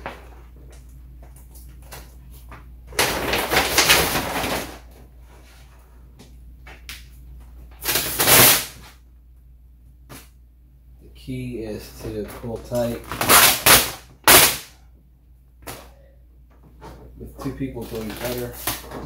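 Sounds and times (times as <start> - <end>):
vinyl film rustling and crinkling: 0.0 - 5.8, 11.9 - 14.5, 17.2 - 19.0.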